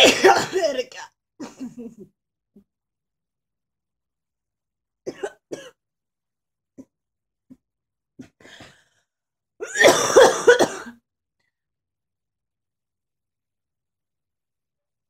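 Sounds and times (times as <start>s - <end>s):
person coughing: 0.0s - 1.9s, 5.1s - 5.8s, 9.6s - 11.0s.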